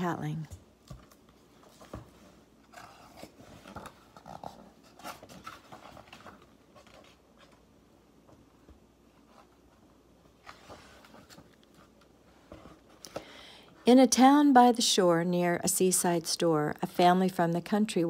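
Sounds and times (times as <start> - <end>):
paper rustling and soft taps: 0.4 - 4.2
book pages turning: 0.8 - 7.7, 9.2 - 13.0.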